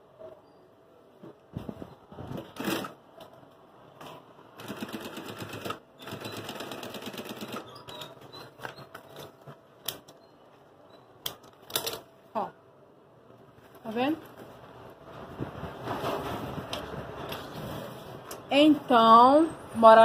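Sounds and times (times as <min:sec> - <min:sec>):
industrial sewing machine stitching: 0:04.6 - 0:08.1.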